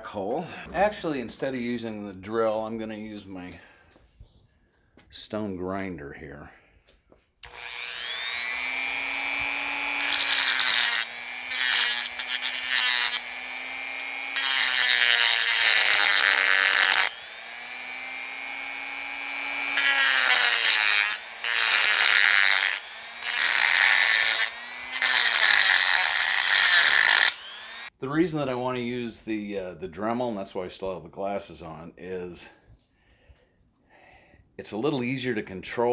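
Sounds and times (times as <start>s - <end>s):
rotary tool grinding metal: 7.4s - 27.9s
rotary tool whining: 7.4s - 27.9s.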